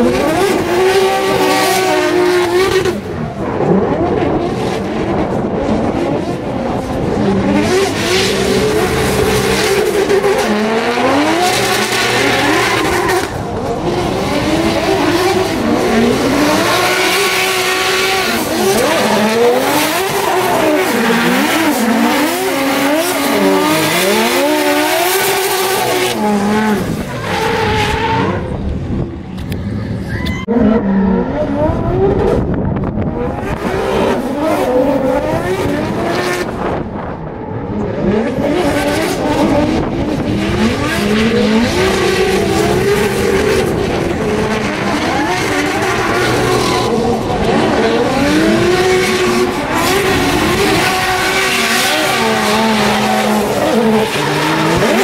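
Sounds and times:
car engines revving: 0.0s - 55.0s.

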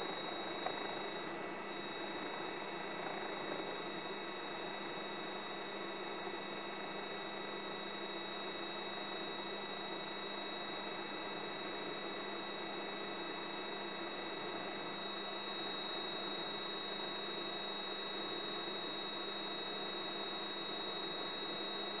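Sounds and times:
electrical hum: 0.0s - 9.2s.

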